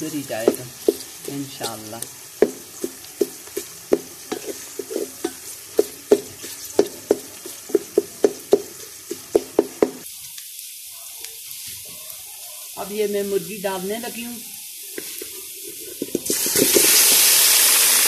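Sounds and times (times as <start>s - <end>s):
onions sizzling in oil: 0.0s - 18.0s
wooden spatula knocking on metal pot: 0.4s - 10.0s.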